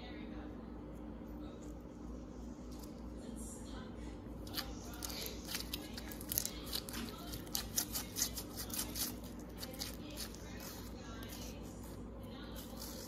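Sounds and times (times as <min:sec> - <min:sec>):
slime crackling and squishing: 0:04.4 - 0:13.0.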